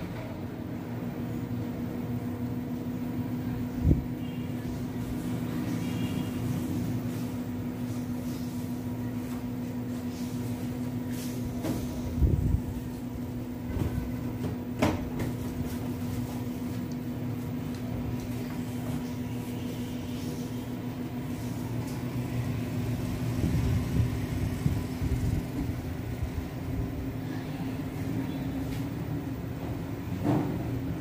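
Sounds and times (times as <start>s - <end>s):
oven motor hum: 0.0s - 31.0s.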